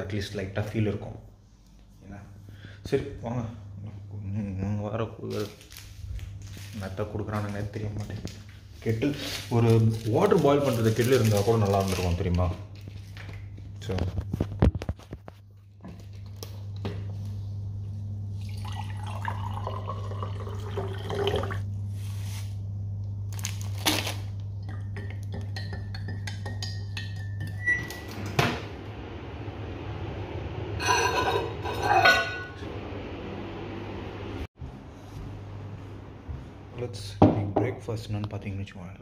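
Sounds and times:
microwave oven humming: 15.5 - 24.7, 27.5 - 36.8
spoon clinking against ceramic mug: 24.7 - 27.7
microwave beep: 27.6 - 28.4.

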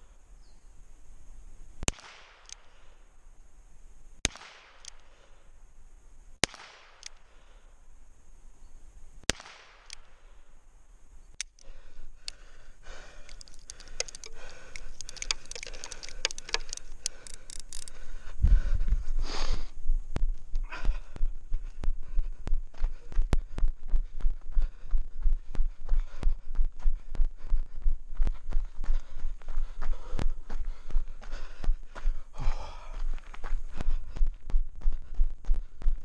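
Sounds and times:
handgun shots with echo: 4.2 - 5.0, 6.4 - 7.2, 9.3 - 10.1.

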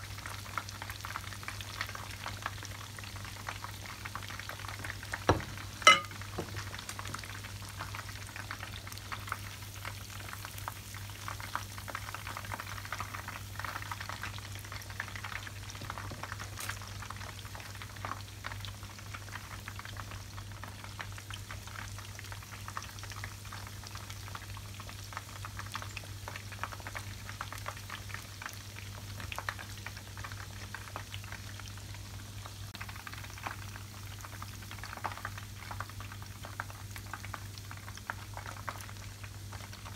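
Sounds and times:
oil crackling and bubbling: 0.0 - 39.9
sharp knocks: 5.3 - 6.6.

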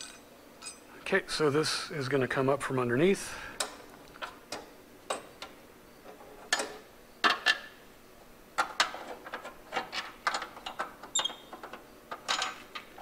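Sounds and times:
metal clinks and taps: 0.0 - 0.8.

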